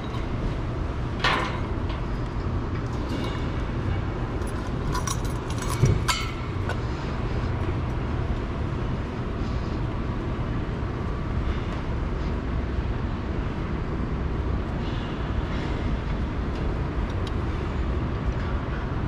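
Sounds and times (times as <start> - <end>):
metal clinks on ladder rungs: 4.4 - 6.8.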